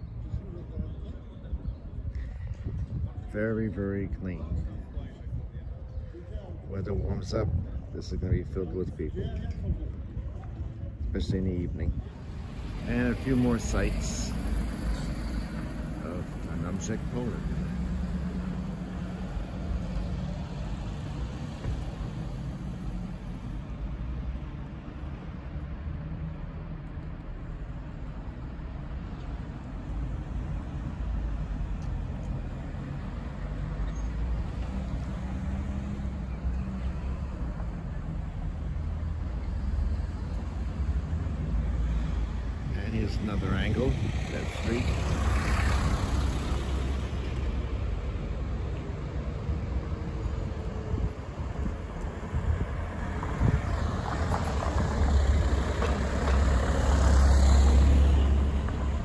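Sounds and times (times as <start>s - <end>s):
car engine passing: 41.0s - 47.9s, 52.8s - 59.0s.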